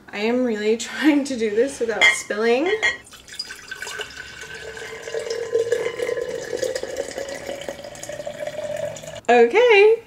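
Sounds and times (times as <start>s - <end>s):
liquid pouring into glass jar: 3.0s - 9.2s.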